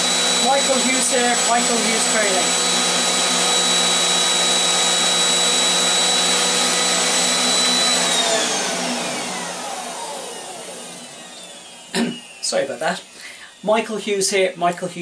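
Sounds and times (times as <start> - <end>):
vacuum cleaner motor whining: 0.0 - 15.0.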